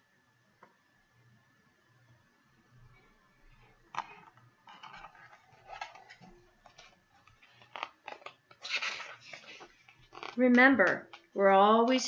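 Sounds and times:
paper rustling: 3.9 - 10.4.

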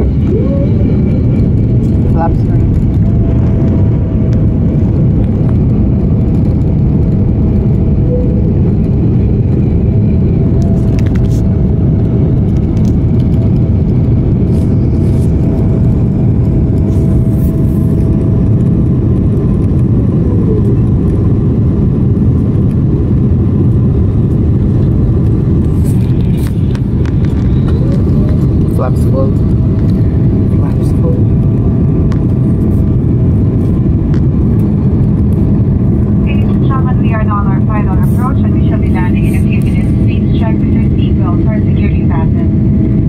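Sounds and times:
airplane cabin rumble: 0.0 - 43.0
thin whine: 7.6 - 11.7.

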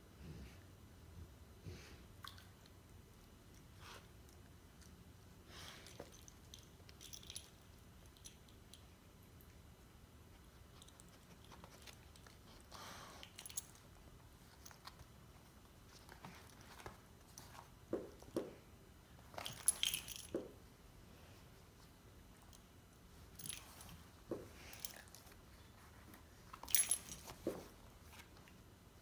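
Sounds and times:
collar tag jingle: 19.3 - 20.6, 22.4 - 25.4, 26.5 - 27.7.

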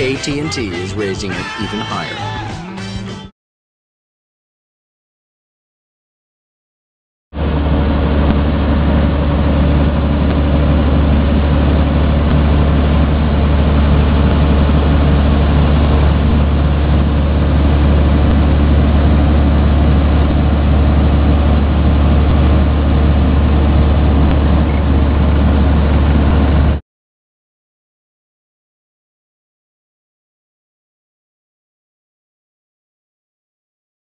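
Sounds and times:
combine harvester droning: 0.0 - 3.1, 7.4 - 26.8.

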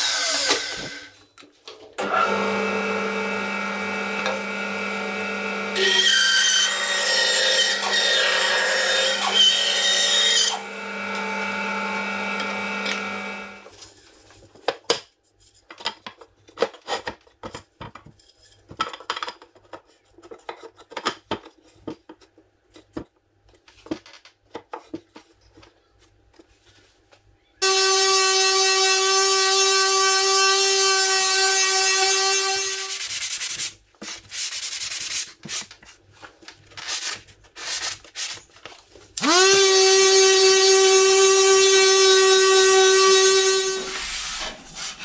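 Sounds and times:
bandsaw cutting wood: 0.0 - 1.1, 2.0 - 13.7, 27.6 - 33.0, 39.2 - 45.0.

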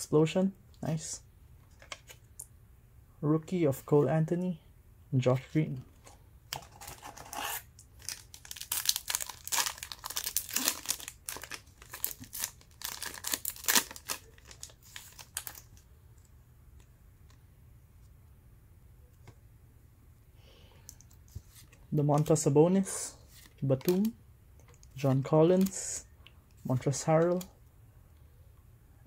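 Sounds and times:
wrapper tearing and crinkling: 6.9 - 15.8.

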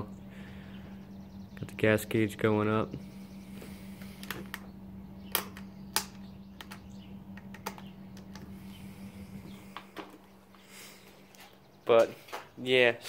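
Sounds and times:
steady low hum: 0.0 - 13.0
sharp clicks and taps: 5.3 - 8.5.

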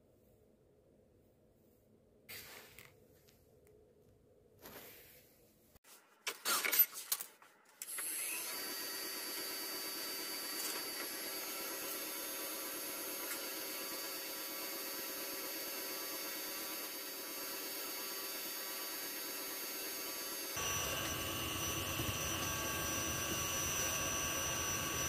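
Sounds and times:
lathe motor whine: 7.9 - 25.0.

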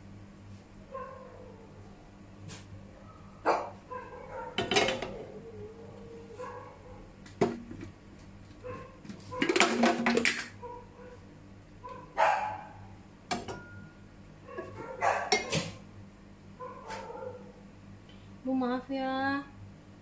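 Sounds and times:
dog barking: 0.9 - 1.7, 3.0 - 4.7, 6.3 - 7.1, 8.6 - 9.4, 10.6 - 11.2, 11.8 - 12.9, 14.4 - 15.8, 16.6 - 17.6
metal frying pan clattering: 4.6 - 5.1.

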